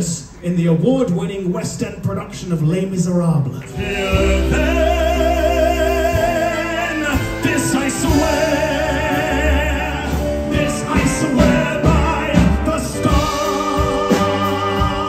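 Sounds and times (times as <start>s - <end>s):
band accompaniment with bass: 0.0s - 15.0s
man singing: 3.6s - 15.0s.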